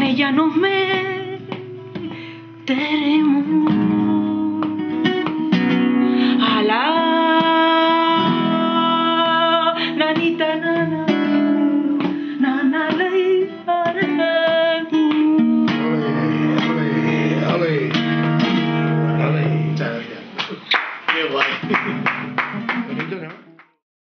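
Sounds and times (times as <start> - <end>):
acoustic guitar strummed and plucked: 0.0 - 23.8
person singing ornamented notes: 15.3 - 17.5.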